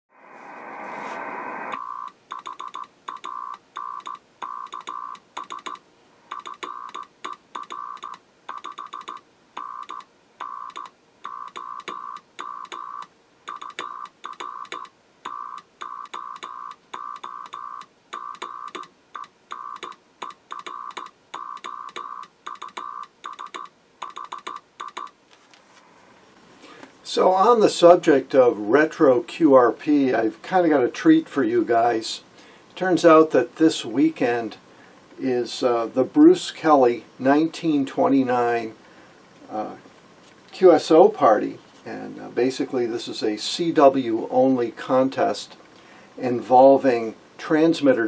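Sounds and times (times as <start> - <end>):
morse code tone: 1.7 - 25.2.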